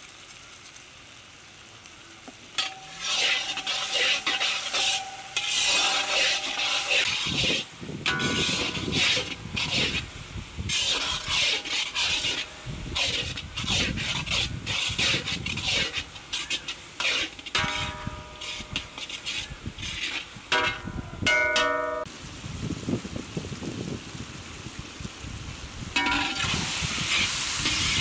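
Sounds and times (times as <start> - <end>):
metal spatula scraping iron pan: 2.6 - 22.1, 26.0 - 28.0
pan ringing when struck: 20.6 - 22.1.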